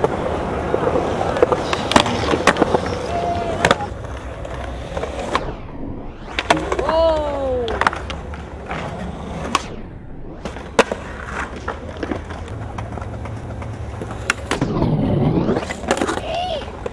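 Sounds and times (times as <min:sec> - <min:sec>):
skateboard clacks: 0:00.0 - 0:05.4, 0:06.4 - 0:09.6, 0:10.6 - 0:14.6
skateboard grinding on ledge: 0:00.0 - 0:05.4
skateboard wheels rolling on concrete: 0:00.0 - 0:16.9.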